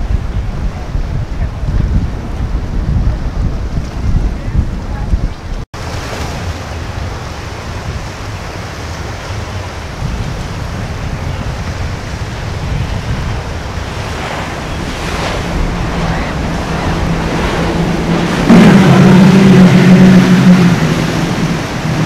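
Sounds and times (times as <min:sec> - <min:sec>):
waves and water: 0:00.0 - 0:22.0
wind buffeting microphone: 0:00.0 - 0:22.0
outboard engines droning: 0:05.8 - 0:22.0.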